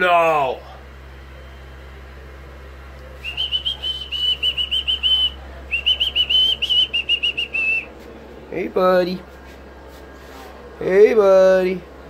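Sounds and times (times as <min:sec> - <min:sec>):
fast high-pitched whistling: 0:03.2 - 0:07.9.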